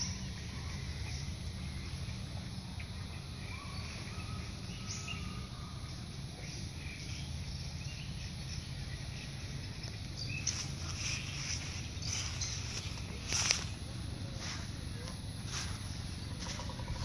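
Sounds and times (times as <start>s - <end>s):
faint bird chirps: 0.0s - 17.0s.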